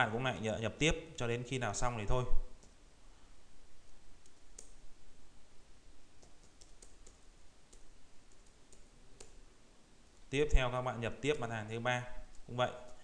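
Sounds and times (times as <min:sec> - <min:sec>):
computer keyboard keystrokes: 0:06.2 - 0:09.4.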